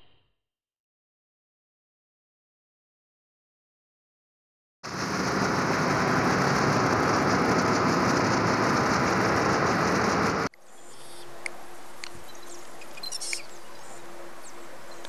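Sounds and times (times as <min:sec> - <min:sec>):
loud rushing noise: 0:04.8 - 0:10.5.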